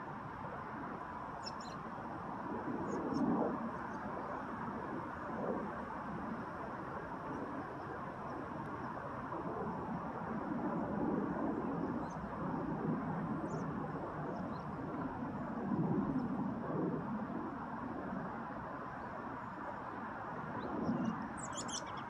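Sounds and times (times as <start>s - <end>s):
steady outdoor rumble: 0.0s - 22.0s.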